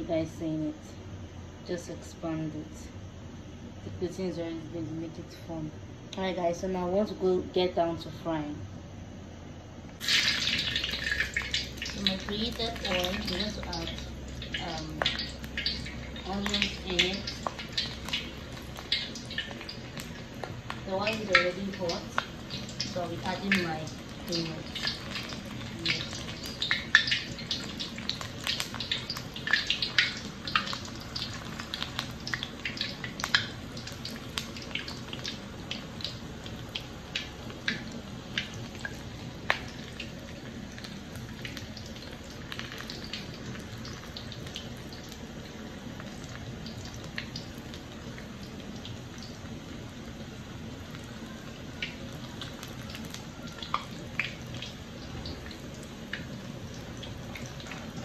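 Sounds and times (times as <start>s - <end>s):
oil sizzling and popping: 9.8s - 58.0s.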